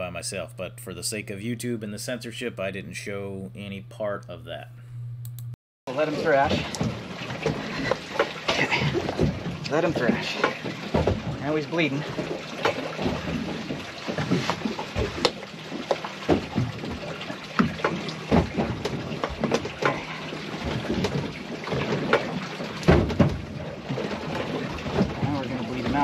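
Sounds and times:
water splashing against boat: 5.9 - 26.0.

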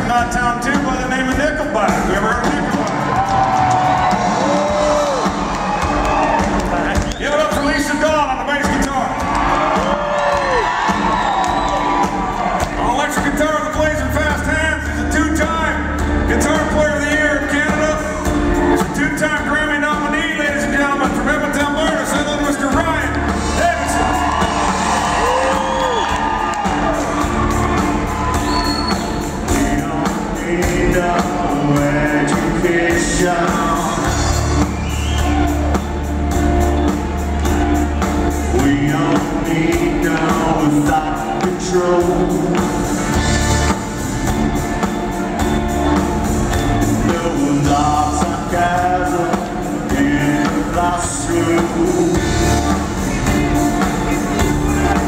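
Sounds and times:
live rock band playing: 0.0 - 55.0
person singing: 29.4 - 34.9, 38.4 - 43.2, 46.8 - 55.0.

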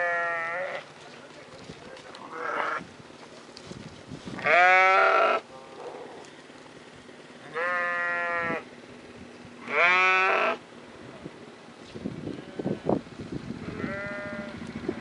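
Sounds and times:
sheep bleating: 0.0 - 0.9, 4.4 - 5.4, 7.5 - 8.6, 9.6 - 10.6, 13.6 - 14.6.

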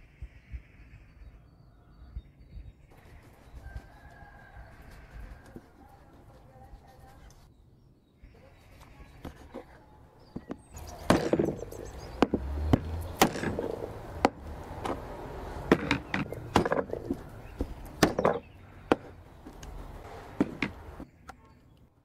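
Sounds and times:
cleaver chopping on wooden board: 10.4 - 21.0.

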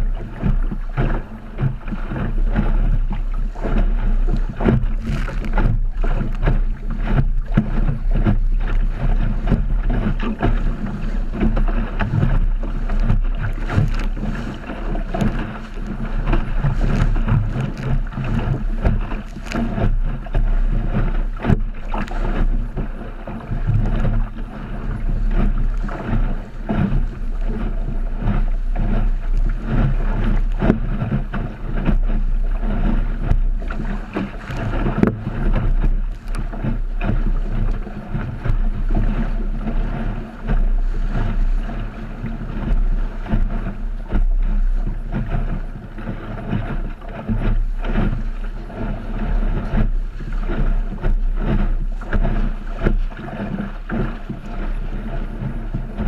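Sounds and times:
water rushing along a hull: 0.0 - 56.0
waves slapping a hull: 0.0 - 56.0
wind buffeting microphone: 0.0 - 56.0.

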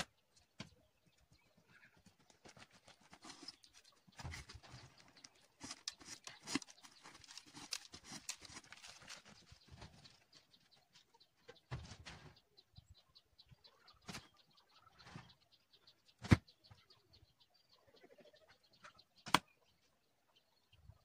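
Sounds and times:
arrows scraping cardboard: 5.6 - 8.8.

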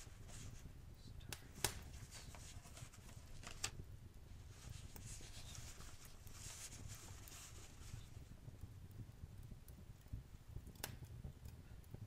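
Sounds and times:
faint rustle: 0.0 - 8.7
fire crackling and popping: 0.0 - 12.0.

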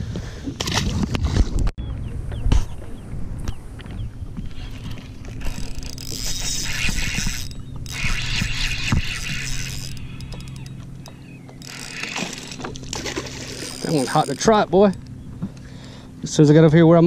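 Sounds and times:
low hum: 1.8 - 17.0
fishing reel gears whirring: 4.5 - 15.7.

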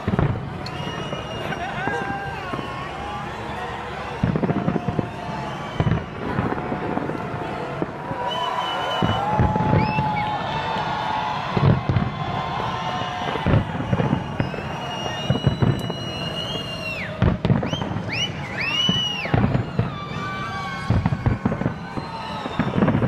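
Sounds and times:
fireworks bangs: 0.0 - 23.0
fireworks whistles: 0.0 - 23.0.

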